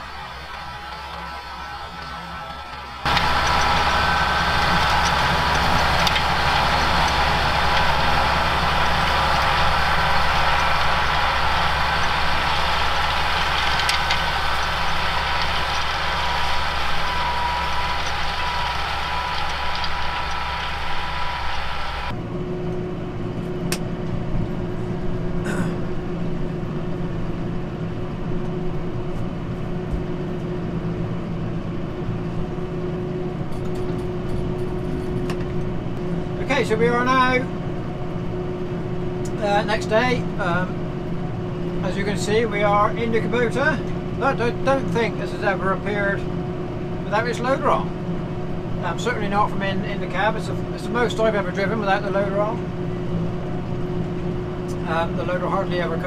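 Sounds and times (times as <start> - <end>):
tractor engine running: 0.0 - 22.2.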